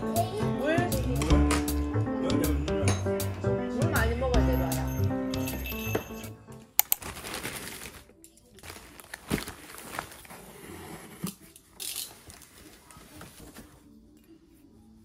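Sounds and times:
plastic bag crinkling: 6.8s - 10.8s
cardboard box rustling: 8.7s - 11.2s.

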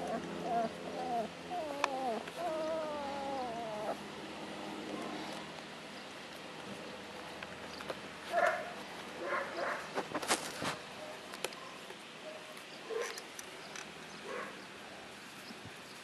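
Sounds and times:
puppies squeaking and whimpering: 0.0s - 4.0s.

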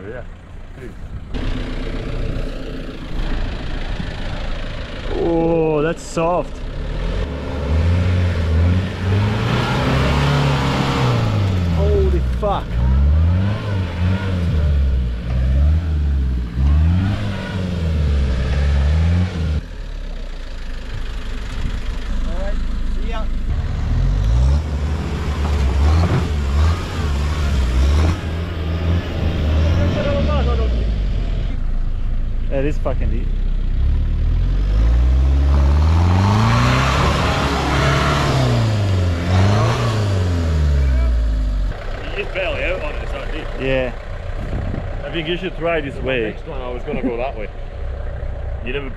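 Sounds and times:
truck engine revving: 0.8s - 19.8s, 20.6s - 48.9s
tyres churning mud: 7.5s - 14.7s, 35.0s - 40.0s.

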